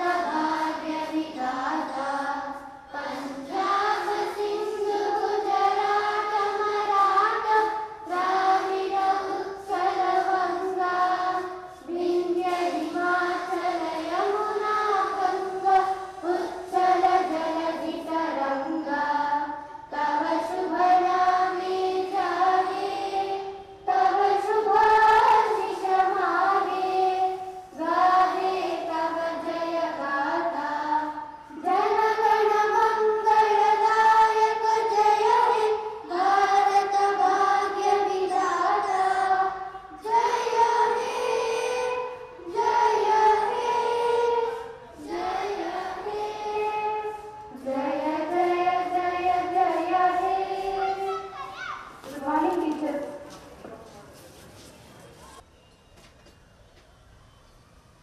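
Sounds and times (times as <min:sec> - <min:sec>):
children singing in unison: 0:00.0 - 0:51.6.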